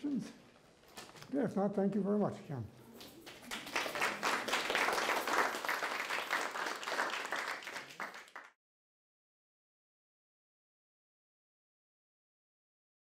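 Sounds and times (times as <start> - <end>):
audience applauding: 3.0 - 8.6.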